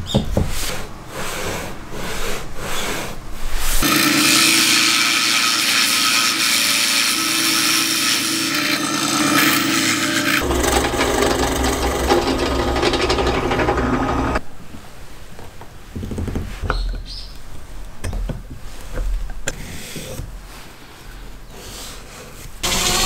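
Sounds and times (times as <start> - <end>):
drill press boring into wood: 3.8 - 14.4.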